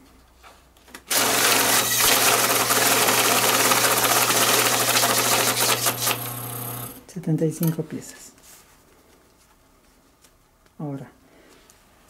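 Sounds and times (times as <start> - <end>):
banknotes riffling through counter: 1.1 - 6.3
motor hum: 1.1 - 7.0.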